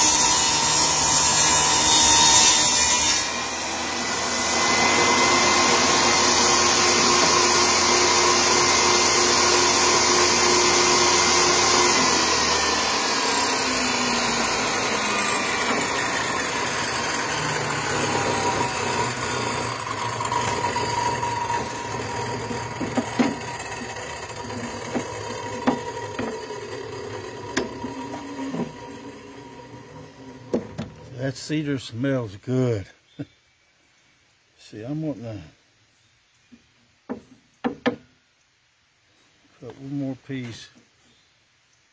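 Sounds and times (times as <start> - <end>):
table saw cutting wood: 0.0 - 31.4
saw blade coasting down: 0.0 - 31.5
wood knocking on saw table: 22.4 - 23.5, 24.8 - 26.4, 27.5 - 28.8, 30.5 - 31.0, 37.1 - 38.1.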